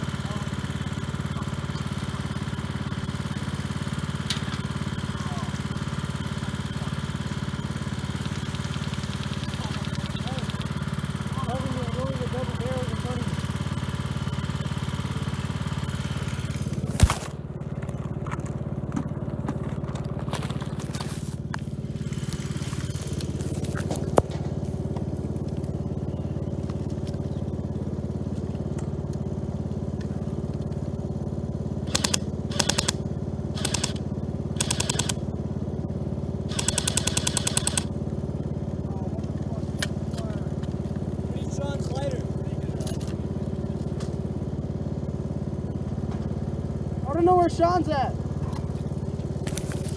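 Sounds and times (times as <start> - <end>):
lawn mower engine idling: 0.0 - 49.9
bursts of rapid clicks: 31.8 - 35.3, 36.5 - 38.0.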